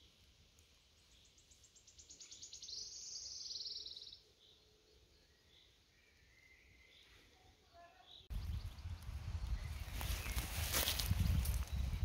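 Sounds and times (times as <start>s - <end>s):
songbird singing a trill: 1.0s - 7.2s, 8.0s - 10.5s.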